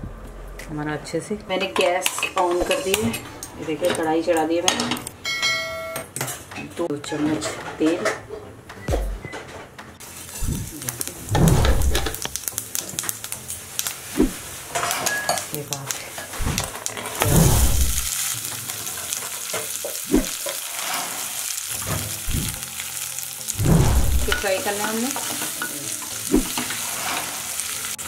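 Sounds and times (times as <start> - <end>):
seeds sizzling in hot oil: 10.0 - 28.0
utensils knocking on pan: 24.0 - 26.8.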